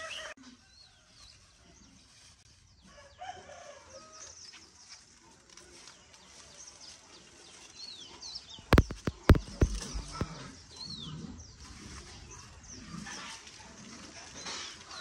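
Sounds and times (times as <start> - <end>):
small birds chirping: 6.0 - 11.6.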